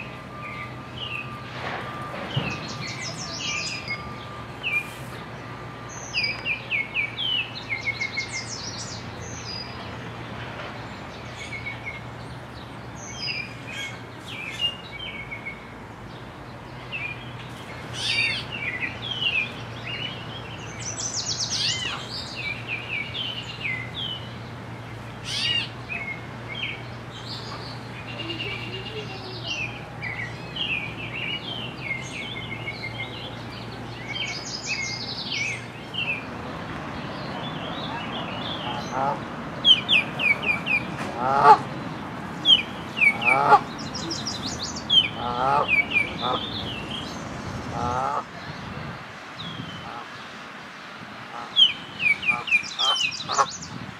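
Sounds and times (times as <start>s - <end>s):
songbirds chirping and singing: 0.0s - 53.9s.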